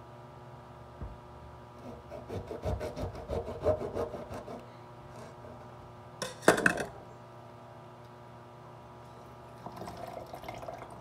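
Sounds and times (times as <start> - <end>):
knife sawing through orange: 1.8 - 4.6.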